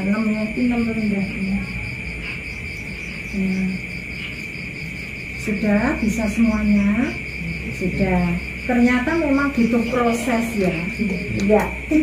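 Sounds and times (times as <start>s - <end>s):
woman speaking: 0.0s - 2.1s, 3.3s - 4.0s, 5.4s - 12.0s
crickets chirping: 0.0s - 12.0s.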